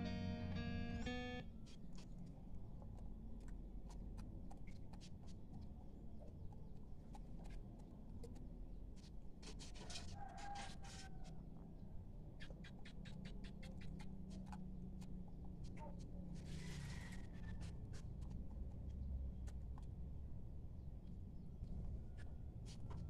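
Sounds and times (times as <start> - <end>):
rooster pecking grains: 9.4 - 11.4.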